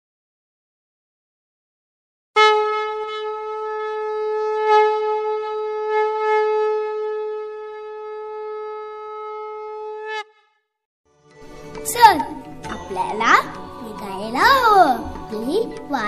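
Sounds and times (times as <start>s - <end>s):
conch shell blown: 2.4s - 10.6s.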